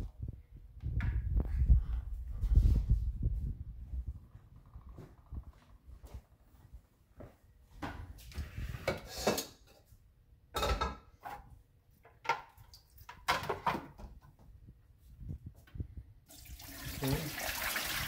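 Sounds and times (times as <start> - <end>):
water pouring into sink: 16.3 - 18.0.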